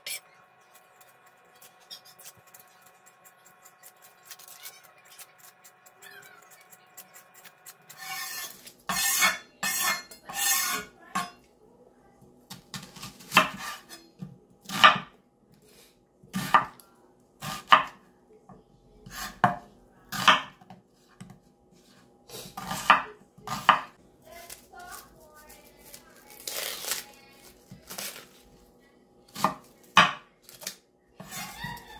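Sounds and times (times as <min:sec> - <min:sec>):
knife scraping onion skin: 0:00.8 - 0:10.9, 0:24.4 - 0:28.4
knife chopping on cutting board: 0:12.5 - 0:13.9, 0:16.3 - 0:16.7, 0:17.4 - 0:18.0, 0:19.0 - 0:21.4, 0:22.6 - 0:23.9.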